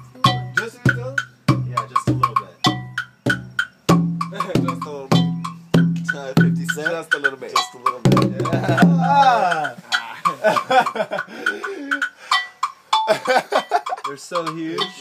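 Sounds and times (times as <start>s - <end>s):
deep hand drum beat: 0.0s - 11.2s
sharp higher drum hits: 8.0s - 9.3s.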